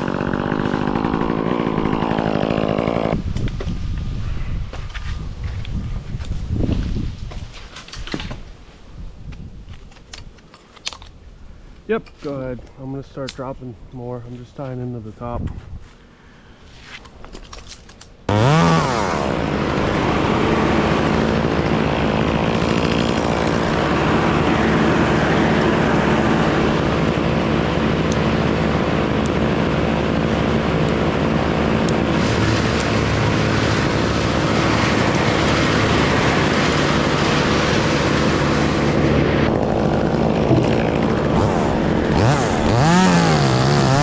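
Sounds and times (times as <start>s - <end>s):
chainsaw starting and running: 0.0s - 3.3s, 18.3s - 44.0s.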